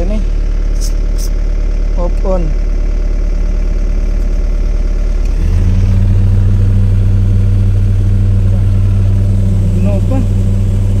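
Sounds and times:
deep steady hum: 0:00.0 - 0:11.0
diesel engine idling: 0:00.0 - 0:11.0.

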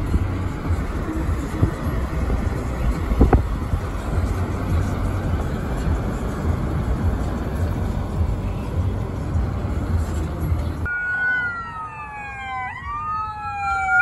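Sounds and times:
wind noise on microphone: 0:00.0 - 0:10.9
traffic rumble: 0:00.0 - 0:14.0
emergency vehicle siren wailing: 0:10.8 - 0:14.0.

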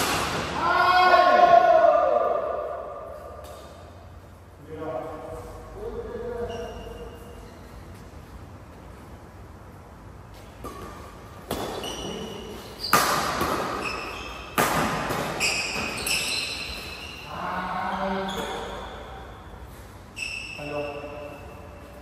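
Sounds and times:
racket hitting shuttlecock: 0:00.0 - 0:00.6, 0:10.4 - 0:17.1
shoes squeaking on court: 0:05.3 - 0:08.5, 0:10.3 - 0:22.0.

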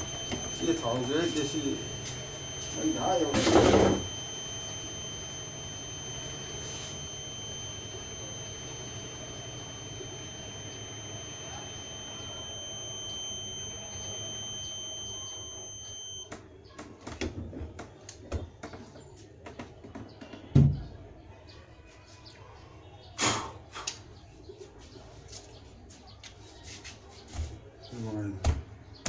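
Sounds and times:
high-pitched electronic tone: 0:00.0 - 0:16.3.

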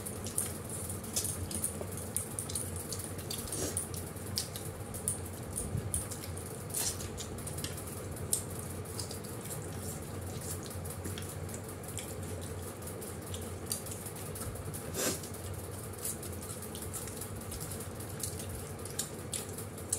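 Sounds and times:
steady low hum: 0:00.0 - 0:19.9
wet chewing and lip-smacking: 0:00.0 - 0:19.9.

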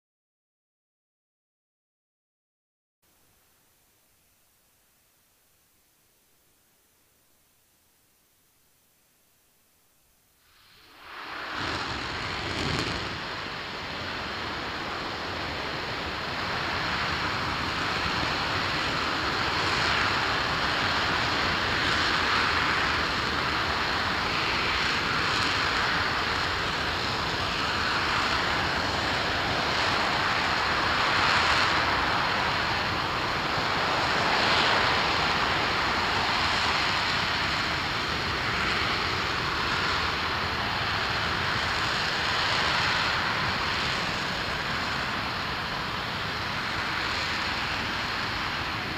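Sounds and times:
rocket engine roaring: 0:10.4 - 0:48.9.

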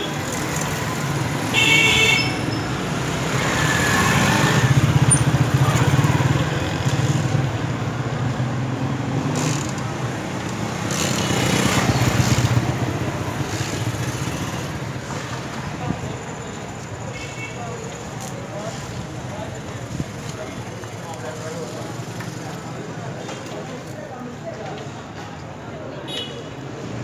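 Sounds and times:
motorcycles passing by: 0:00.0 - 0:16.9
street noise: 0:00.0 - 0:27.0.

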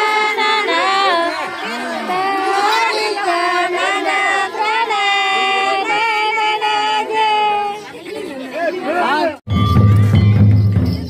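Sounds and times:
women singing together: 0:00.0 - 0:07.9.

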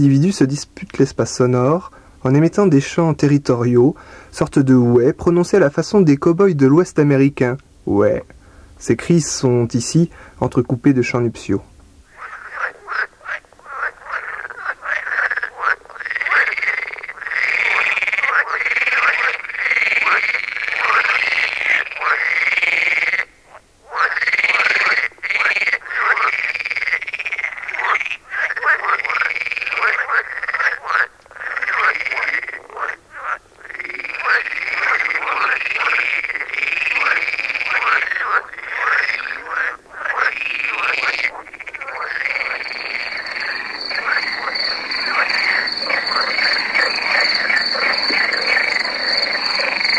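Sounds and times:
frogs calling: 0:08.2 - 0:49.9.

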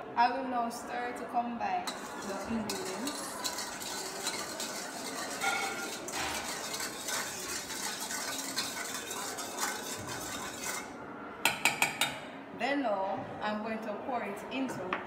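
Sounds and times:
utensil stirring in metal bowl: 0:01.8 - 0:12.2.

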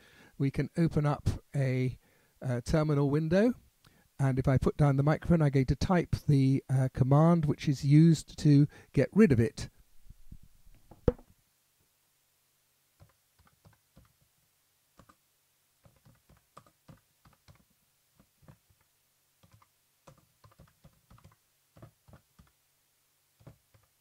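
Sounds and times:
keyboard typing clicks: 0:15.0 - 0:15.2, 0:15.8 - 0:17.6, 0:19.4 - 0:22.6.

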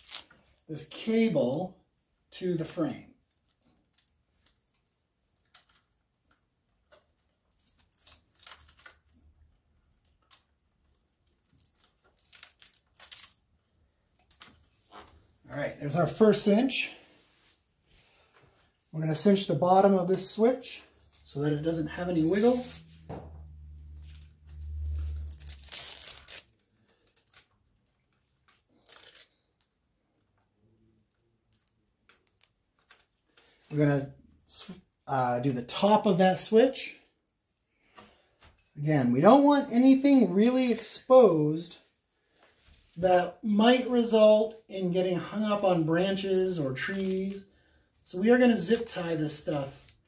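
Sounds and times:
zip tie being pulled tight: 0:24.1 - 0:26.5.

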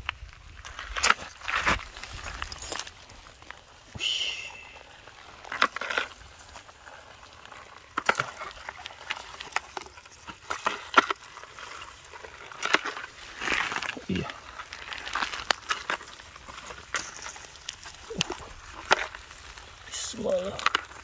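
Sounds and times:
rustling in leaf litter: 0:04.5 - 0:21.0.

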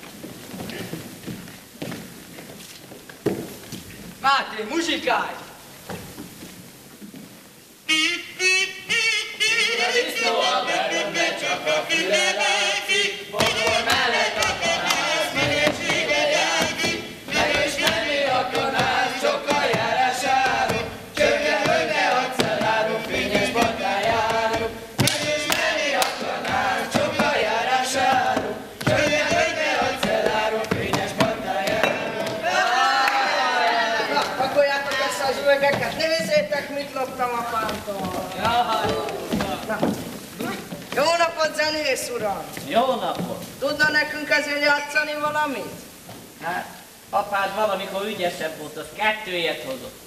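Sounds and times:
boots knocking on wooden stage: 0:15.4 - 0:25.4, 0:28.1 - 0:32.4, 0:34.2 - 0:41.1.

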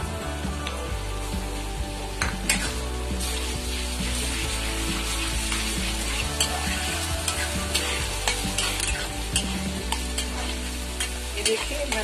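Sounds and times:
onion and garlic sizzling in oil: 0:00.0 - 0:12.0
spatula scraping a pan: 0:02.5 - 0:12.0.

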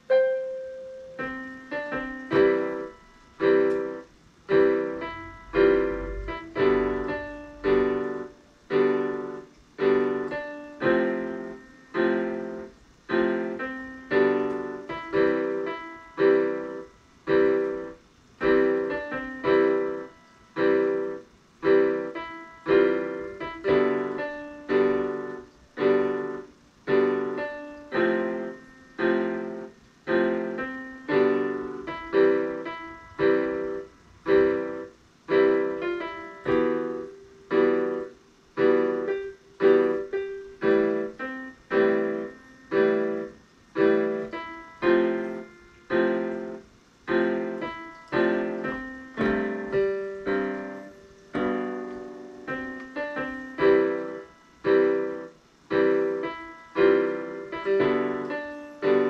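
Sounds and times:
electronic keyboard piano melody: 0:00.0 - 0:59.0.

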